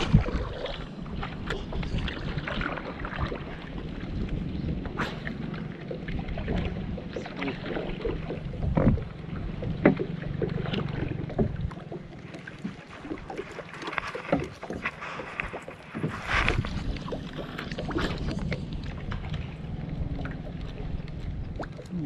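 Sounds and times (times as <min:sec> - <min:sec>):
wind on microphone: 0:00.0 - 0:09.8, 0:14.3 - 0:22.0
water lapping against boat hull: 0:00.0 - 0:22.0.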